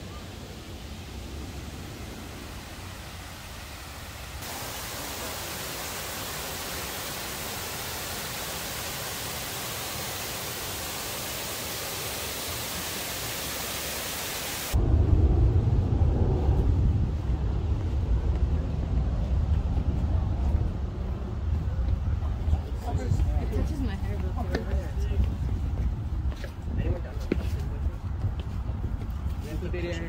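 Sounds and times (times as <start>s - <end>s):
waterfall rushing: 0.0s - 14.8s
wind buffeting microphone: 14.8s - 30.0s.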